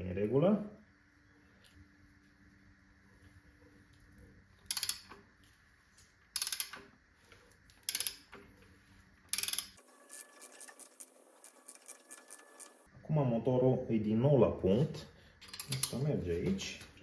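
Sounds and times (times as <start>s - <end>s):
ratchet wrench clicking: 4.7s - 5.2s, 6.4s - 6.9s, 7.7s - 8.4s, 9.3s - 12.8s, 15.4s - 16.0s.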